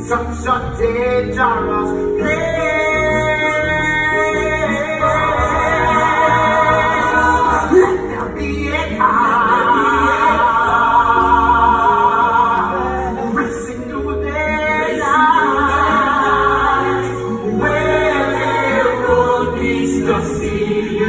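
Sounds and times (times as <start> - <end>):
ensemble singing musical theatre: 0.0 - 21.0.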